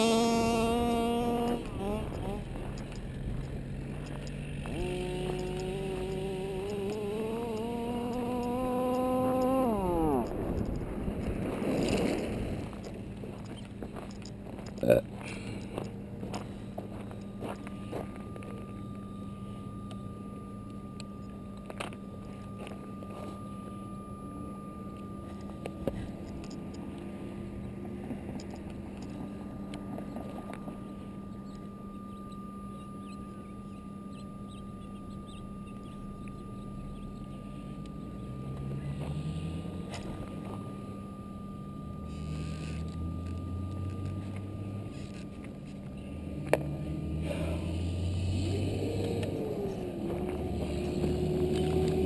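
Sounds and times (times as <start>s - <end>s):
small two-stroke engine idling: 0.0s - 10.8s.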